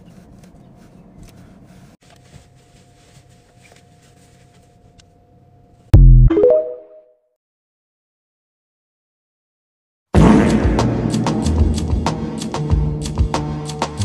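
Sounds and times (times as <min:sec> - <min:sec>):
deep bass boom: 0:06.0 - 0:06.3, 0:10.2 - 0:12.1.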